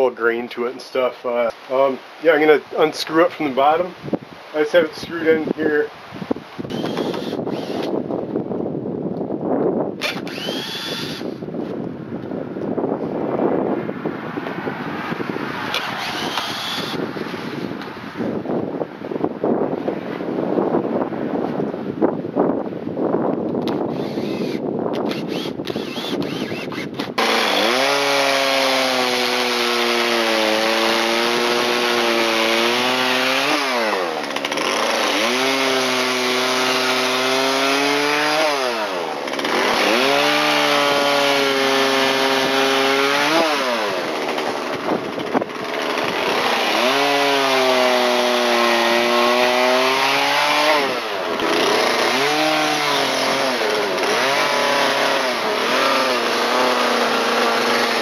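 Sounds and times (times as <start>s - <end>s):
chainsaw cutting wood: 6.5s - 8.0s, 10.0s - 11.5s, 15.6s - 18.0s, 23.6s - 58.0s
chainsaw revving: 6.6s - 7.9s, 10.0s - 11.4s, 15.7s - 17.1s, 23.7s - 58.0s.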